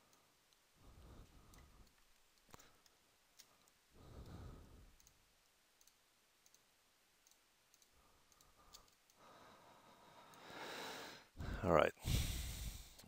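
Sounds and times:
computer mouse clicks: 0:01.2 - 0:09.2.

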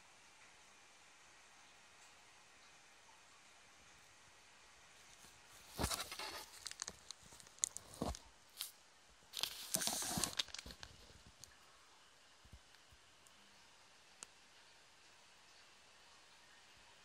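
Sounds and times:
rustling scrape: 0:05.2 - 0:08.8, 0:09.4 - 0:11.3
device handling clicks and scrapes: 0:05.7 - 0:08.7, 0:09.4 - 0:11.2.

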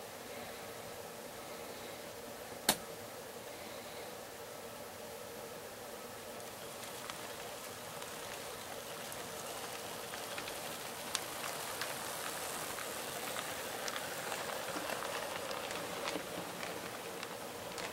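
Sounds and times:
model train motor whirring: 0:06.4 - 0:17.9
wheels clicking over rails: 0:06.4 - 0:17.9.

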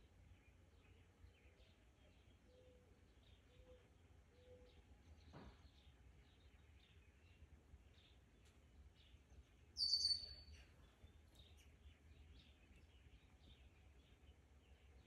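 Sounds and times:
faint songbirds chirping: 0:00.0 - 0:15.0
loud sharp bird call: 0:09.8 - 0:10.4.

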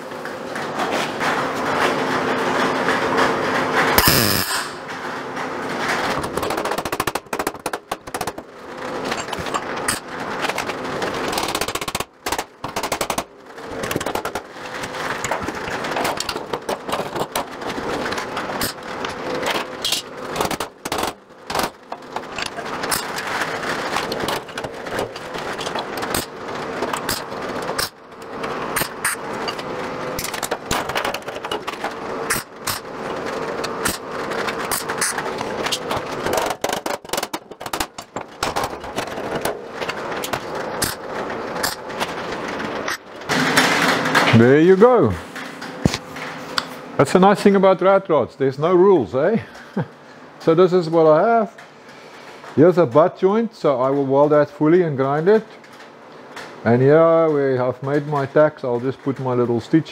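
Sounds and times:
welding arc crackling: 0:03.9 - 0:04.9.

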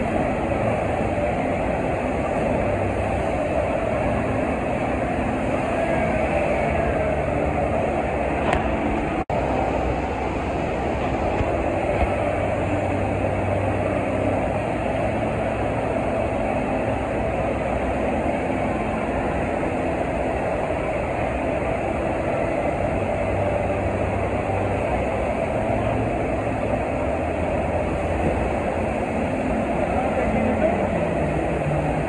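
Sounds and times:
low hum: 0:00.0 - 0:32.0.

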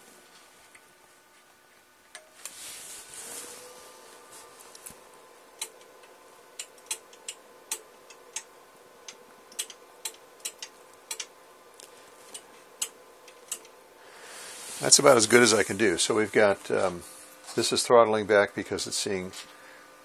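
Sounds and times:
relays clicking: 0:05.6 - 0:11.3, 0:12.3 - 0:13.8.

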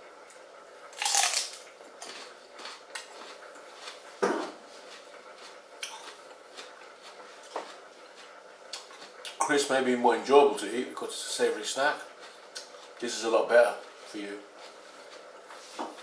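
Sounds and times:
chewing crisp celery crunches: 0:00.9 - 0:04.1, 0:04.8 - 0:09.4.

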